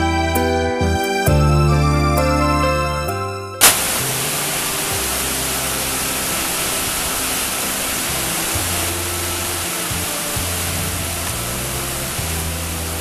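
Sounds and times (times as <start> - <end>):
heavy rain on pavement: 3.6 - 13.0.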